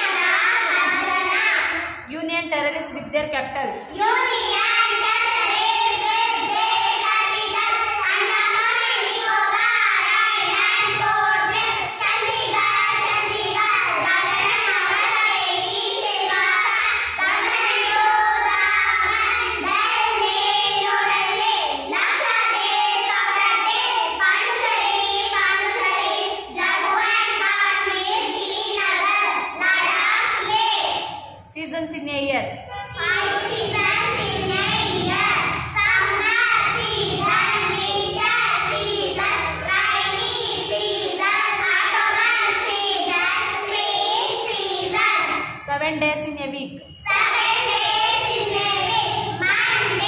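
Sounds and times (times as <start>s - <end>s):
girls singing in unison: 0.0s - 2.1s, 3.8s - 31.4s, 32.7s - 45.6s, 46.9s - 50.0s.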